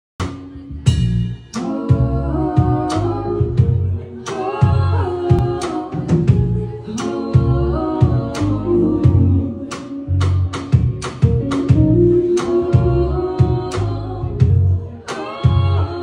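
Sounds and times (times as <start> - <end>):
drum kit: 0.2 - 16.0
electric bass: 0.2 - 16.0
person singing: 1.5 - 16.0
electric guitar: 8.6 - 14.8.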